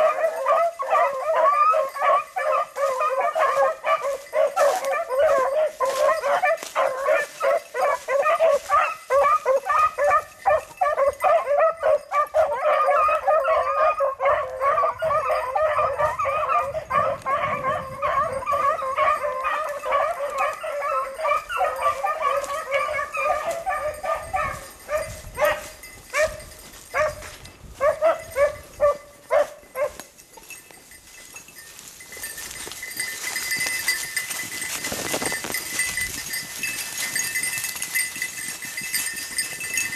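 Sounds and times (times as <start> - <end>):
pack of dogs baying: 0.0 - 30.6.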